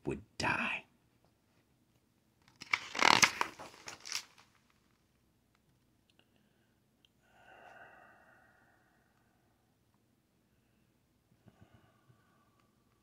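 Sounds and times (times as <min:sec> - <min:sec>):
book page rustling: 0:02.4 - 0:05.0.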